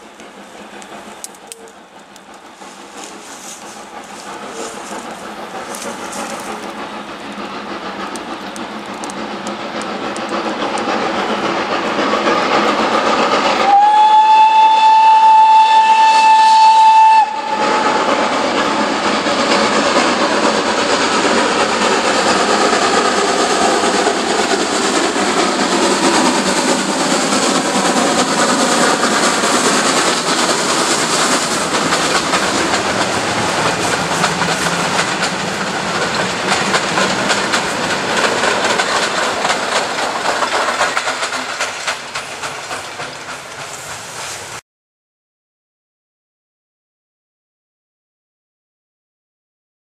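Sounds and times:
train running past: 0:00.0 - 0:44.6
steam whistle blast: 0:13.6 - 0:18.0.

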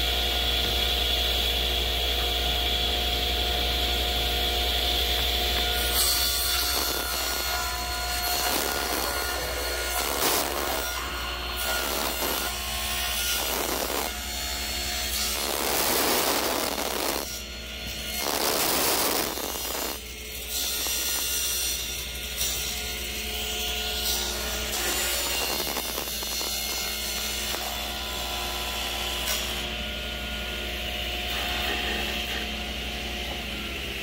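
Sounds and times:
plastic sheet being cut: 0:05.7 - 0:22.8, 0:23.9 - 0:29.7.

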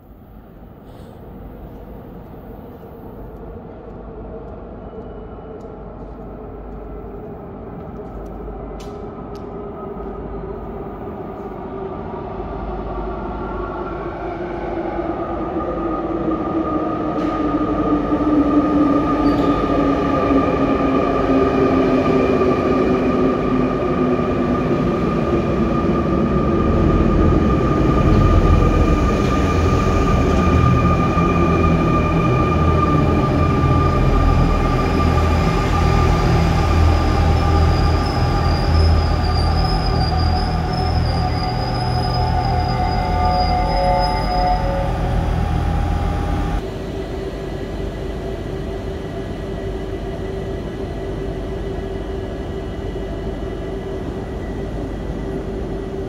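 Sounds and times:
electric train whining: 0:00.0 - 0:56.0
low rail rumble: 0:00.0 - 0:56.0
steady high whine: 0:42.2 - 0:54.8.

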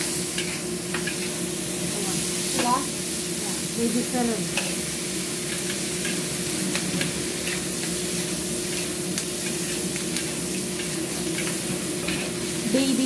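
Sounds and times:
spatula scraping a wok: 0:00.0 - 0:01.7, 0:04.5 - 0:12.8
food sizzling in a wok: 0:00.0 - 0:13.0.

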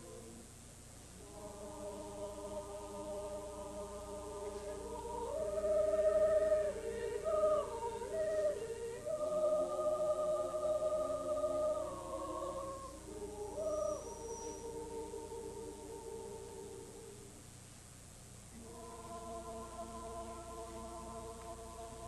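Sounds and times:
mixed choir singing: 0:00.0 - 0:00.4, 0:01.2 - 0:17.3, 0:18.6 - 0:22.0.

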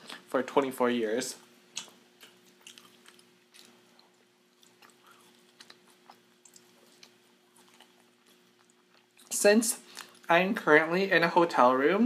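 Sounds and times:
chewing with mouth smacks: 0:01.7 - 0:10.3.

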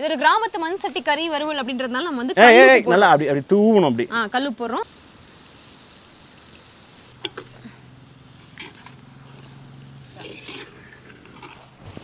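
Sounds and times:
ladle scraping pot: 0:10.1 - 0:11.8.

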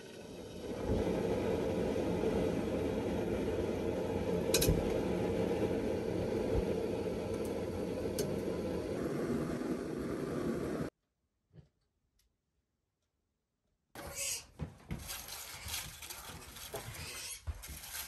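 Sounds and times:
gas stove burner rushing: 0:00.0 - 0:10.9.

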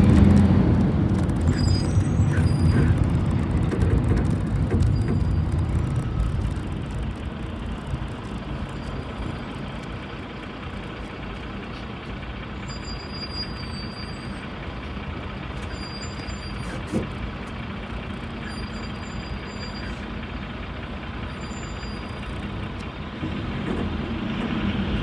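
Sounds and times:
bus engine drone: 0:00.0 - 0:25.0
faint high squeak: 0:01.5 - 0:03.0, 0:12.6 - 0:14.4, 0:15.6 - 0:17.0, 0:18.4 - 0:20.1, 0:21.3 - 0:22.3.

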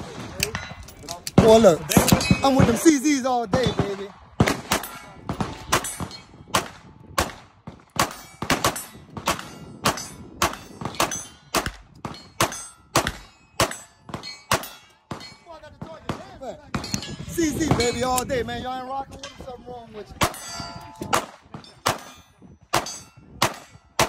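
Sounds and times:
pistol shots: 0:01.3 - 0:15.4, 0:21.0 - 0:22.1, 0:22.7 - 0:24.0.

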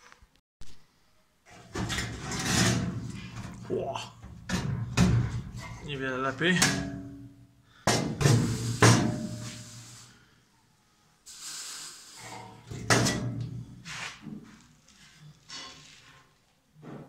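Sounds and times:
metal scrape: 0:01.5 - 0:06.0, 0:08.2 - 0:10.2, 0:12.1 - 0:14.3
sheet metal knocks and clanks: 0:04.2 - 0:05.9, 0:06.6 - 0:09.4, 0:12.7 - 0:13.6.

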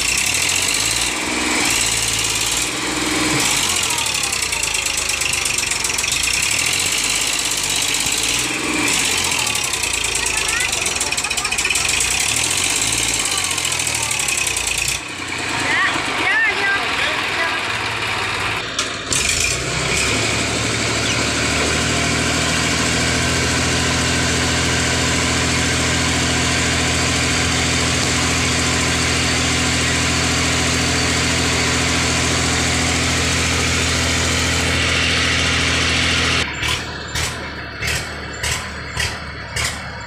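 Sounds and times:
diesel tractor engine under load: 0:00.0 - 0:40.0.

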